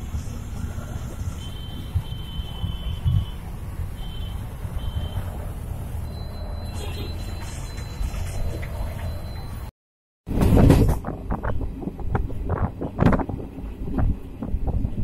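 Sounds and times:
scooters and motorcycles passing close: 0:00.0 - 0:09.0
road traffic rumble: 0:00.0 - 0:09.7, 0:10.3 - 0:15.0
high beeping tone: 0:06.0 - 0:09.7.

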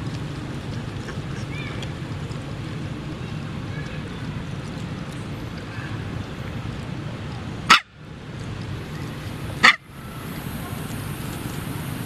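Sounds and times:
animal barks: 0:07.7 - 0:07.9, 0:09.6 - 0:09.9.

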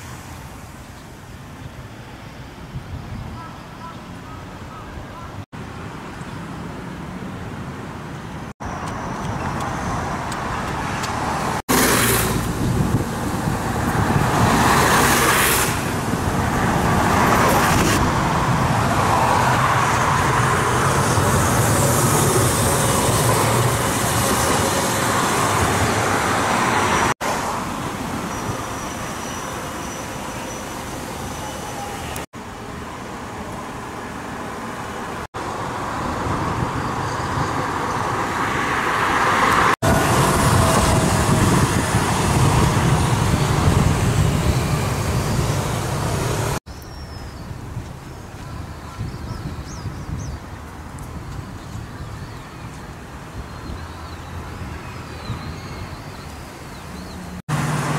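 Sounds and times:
cars passing: 0:05.6 - 0:46.6, 0:52.5 - 0:57.9
tram passing close by: 0:08.6 - 0:46.6.

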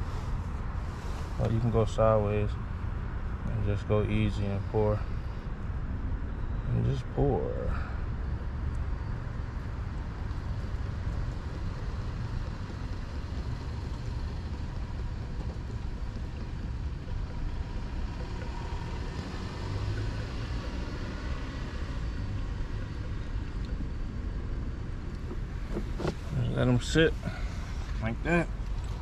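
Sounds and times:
motor oil glugging: 0:00.0 - 0:29.0
steady low rumble: 0:07.6 - 0:29.0.

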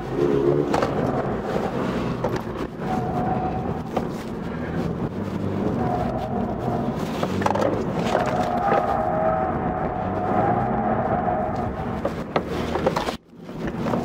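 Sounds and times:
car engine revving: 0:00.0 - 0:13.0
road and wind noise: 0:00.0 - 0:14.0.

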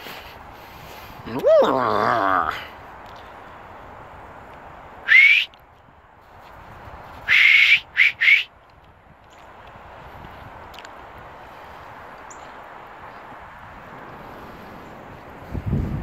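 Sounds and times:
person whistling: 0:05.1 - 0:05.5, 0:07.3 - 0:08.5.

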